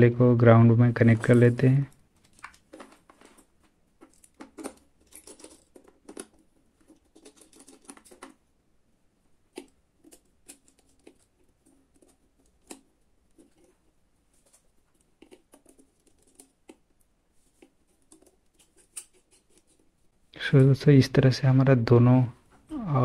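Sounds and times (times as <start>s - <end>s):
hands handling wires clicking: 1.2s - 8.4s, 9.5s - 19.9s.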